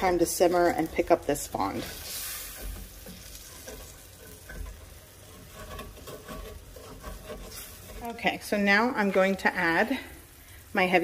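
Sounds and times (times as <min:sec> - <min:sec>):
broth simmering and sizzling: 0:00.0 - 0:11.0
wooden spatula stirring in a skillet: 0:00.0 - 0:11.0.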